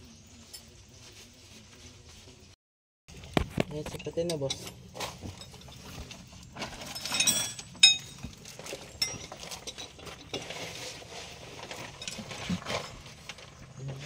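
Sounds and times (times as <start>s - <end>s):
metal parts clinking and rattling: 3.8s - 10.8s, 11.5s - 13.7s
sharp ringing metal clink: 7.1s - 8.2s.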